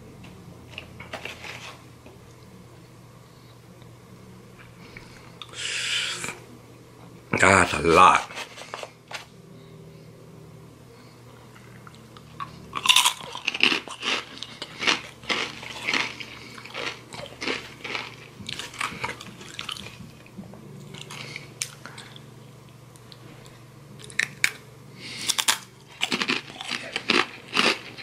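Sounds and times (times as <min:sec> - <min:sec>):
crunching and chewing chips: 0:11.5 - 0:28.0.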